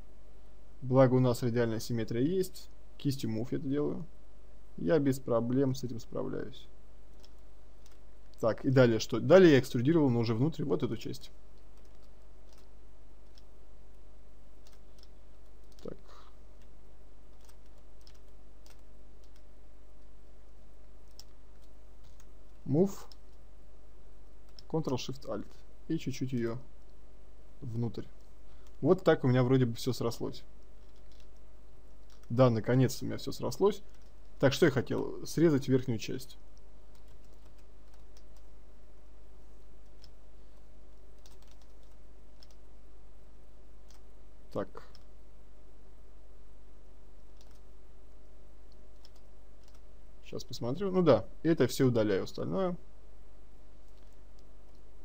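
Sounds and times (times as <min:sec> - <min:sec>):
steady low hum: 0:00.0 - 0:55.0
keyboard and mouse clicks: 0:07.2 - 0:08.4, 0:11.6 - 0:13.5, 0:14.6 - 0:16.0, 0:17.3 - 0:19.5, 0:21.0 - 0:23.4, 0:24.5 - 0:25.6, 0:30.8 - 0:31.4, 0:32.0 - 0:32.4, 0:39.8 - 0:40.2, 0:41.2 - 0:42.6, 0:47.3 - 0:47.6, 0:48.7 - 0:49.8, 0:53.8 - 0:54.8
mouse and keyboard clicks: 0:11.8 - 0:13.5, 0:17.3 - 0:19.5, 0:30.8 - 0:31.4, 0:32.0 - 0:32.3, 0:47.3 - 0:47.6, 0:48.7 - 0:49.8.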